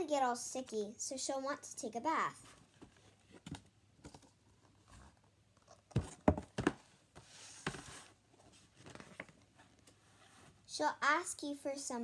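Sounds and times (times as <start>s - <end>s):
page turning: 2.7s - 10.5s
book knocks and taps: 5.9s - 6.8s.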